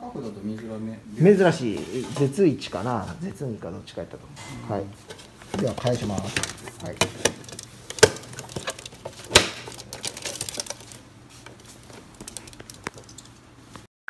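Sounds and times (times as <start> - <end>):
plastic clicking and rustling: 5.1 - 13.4.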